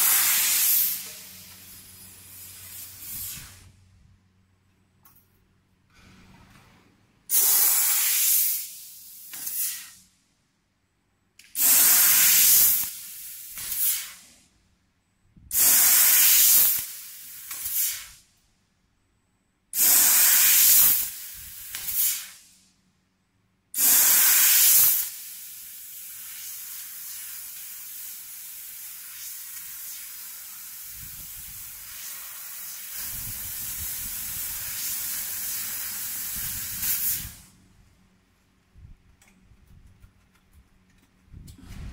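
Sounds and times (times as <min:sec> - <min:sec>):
gas blasts hissing: 0:00.0 - 0:03.8, 0:07.3 - 0:10.0, 0:11.6 - 0:14.4, 0:15.5 - 0:18.2, 0:19.8 - 0:22.6, 0:23.8 - 0:37.6
short puff of gas: 0:31.1 - 0:37.5.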